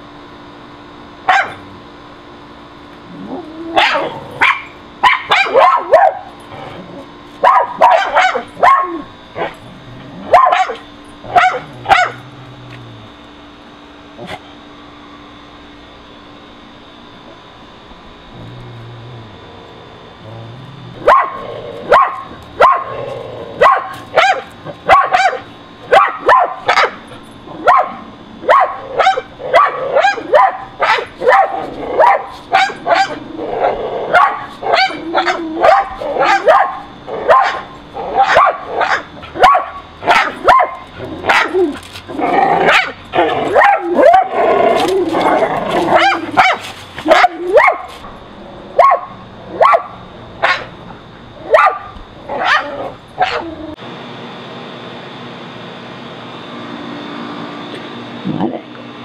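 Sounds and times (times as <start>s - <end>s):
small dogs barking: 1.3s - 1.8s, 3.2s - 6.4s, 7.4s - 9.6s, 10.2s - 12.4s, 21.0s - 48.0s, 48.7s - 53.8s.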